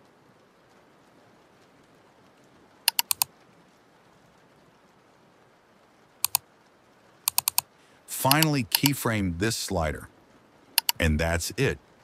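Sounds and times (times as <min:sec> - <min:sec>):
faint steady hiss: 0:00.0 - 0:12.0
computer clicking: 0:02.9 - 0:03.3, 0:07.3 - 0:07.6, 0:08.3 - 0:09.0, 0:10.8 - 0:11.1.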